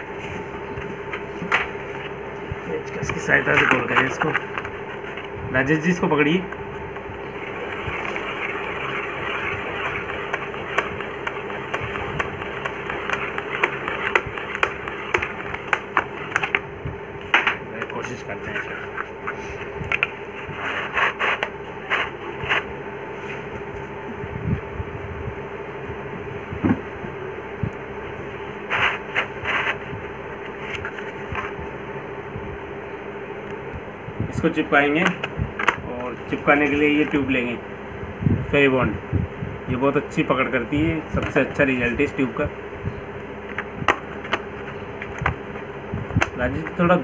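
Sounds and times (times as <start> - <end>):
steady background hum: 0.0 - 47.0
paper rustling scrapes: 20.3 - 23.5, 28.6 - 31.6.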